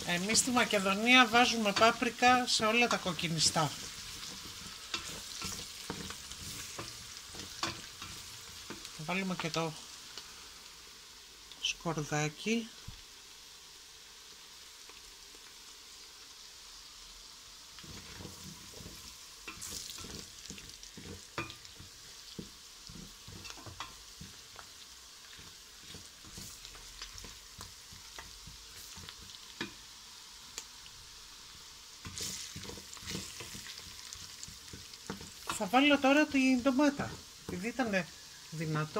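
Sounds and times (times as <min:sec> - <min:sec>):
onion and garlic sizzling in oil: 0:00.0 - 0:38.9
wooden spoon scraping a pot: 0:02.9 - 0:09.0, 0:17.8 - 0:29.8, 0:32.0 - 0:37.6.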